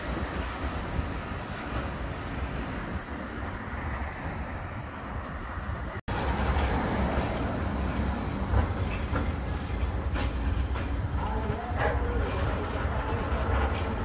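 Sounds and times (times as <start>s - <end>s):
tram rail rumble: 0.0s - 14.0s.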